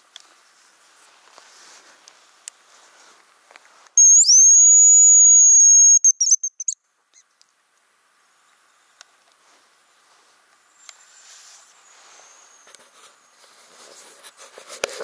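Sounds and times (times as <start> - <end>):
high decoy whistle with trill: 4.0 - 6.8.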